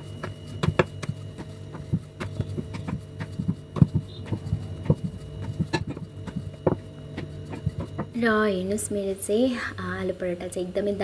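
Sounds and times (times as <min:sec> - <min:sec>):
steady low hum: 0:00.0 - 0:11.0
rolling pin knocking on board: 0:00.2 - 0:08.2.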